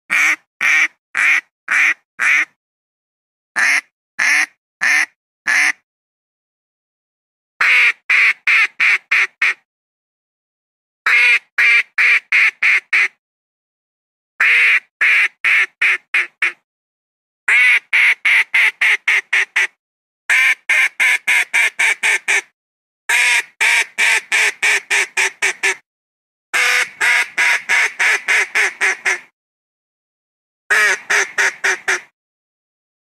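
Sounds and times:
duck quacking: 0.1 - 2.6, 3.6 - 5.8, 7.6 - 9.6, 11.1 - 13.2, 14.4 - 16.6, 17.5 - 22.5, 23.1 - 25.8, 26.6 - 29.3, 30.7 - 32.1.

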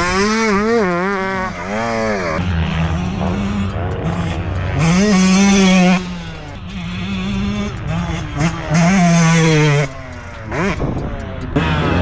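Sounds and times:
two-stroke dirt bike revving: 0.0 - 12.0.

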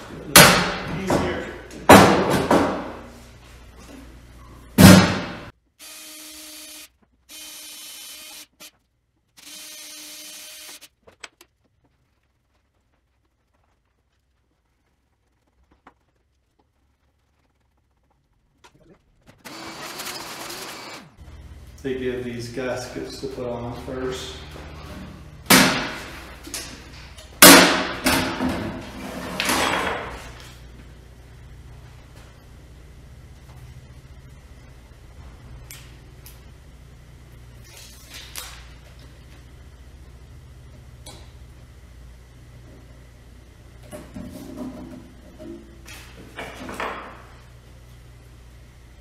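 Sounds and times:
cordless drill running: 5.8 - 8.7, 9.4 - 10.9, 19.4 - 21.1.

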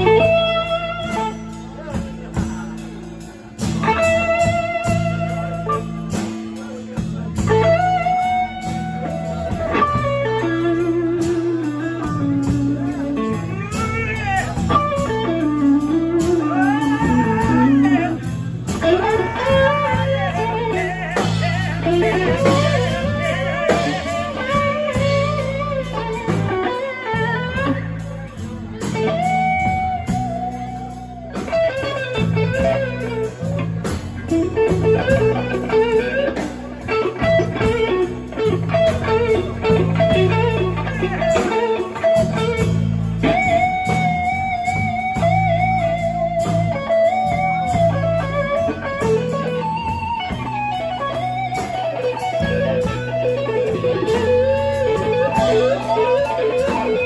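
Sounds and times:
bass guitar: 0.0 - 57.0
drums: 0.0 - 57.0
electric guitar lead: 0.0 - 57.0.

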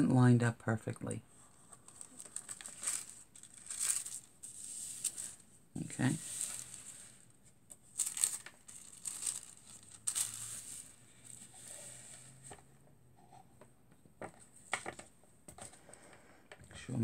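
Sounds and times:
foil and paper crinkling: 1.8 - 12.3.

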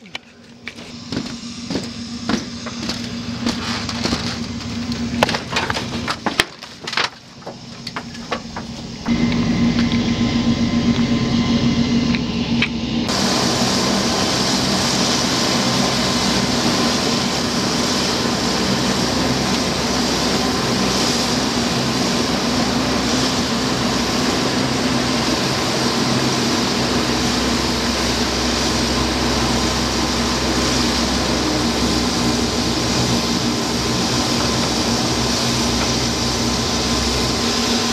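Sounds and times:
hovercraft turbines roaring: 0.0 - 37.9
sharp knocks and clatters: 0.7 - 8.9.

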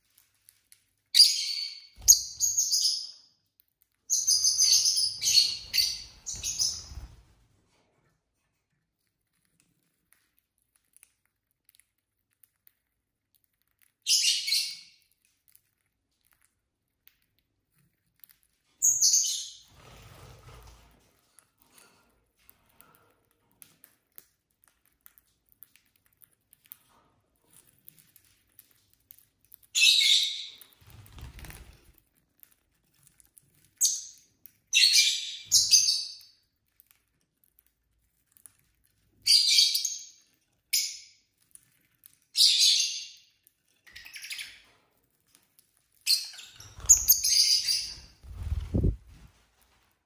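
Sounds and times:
lovebirds chirping: 4.1 - 7.0, 46.0 - 49.0.

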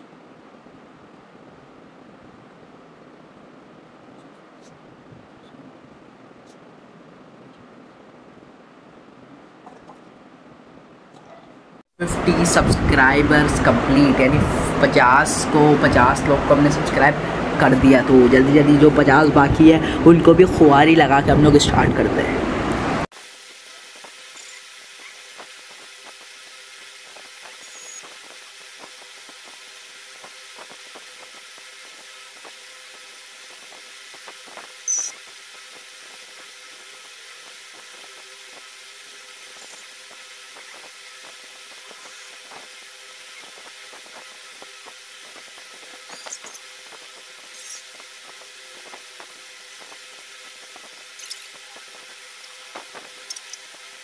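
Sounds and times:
low hum: 0.0 - 23.1
high squeak: 34.9 - 35.2.

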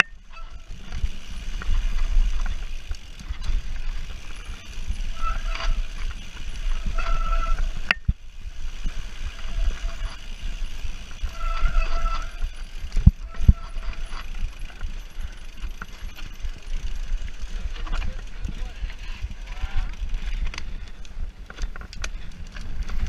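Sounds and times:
bike tyres and wind rumble: 0.0 - 23.0
bike brakes squealing: 0.1 - 2.2, 3.4 - 7.9, 8.7 - 16.9.

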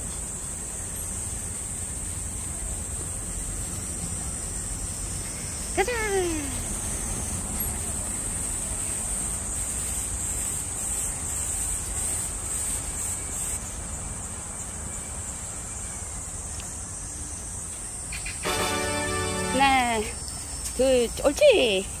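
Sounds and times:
insect chorus: 0.0 - 22.0.

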